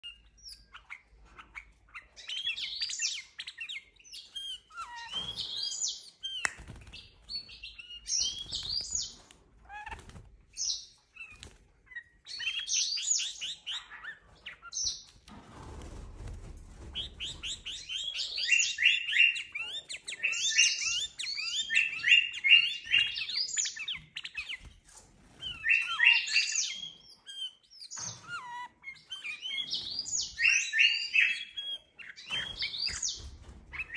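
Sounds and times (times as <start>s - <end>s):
bird flapping wings: 6.4s - 7.4s, 8.2s - 10.5s, 15.1s - 18.2s.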